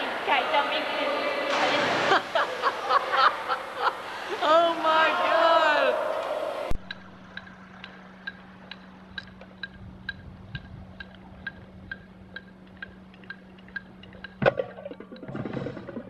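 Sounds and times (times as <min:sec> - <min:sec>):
low hum: 0:00.8 - 0:16.0
metronome clicking: 0:06.8 - 0:15.3.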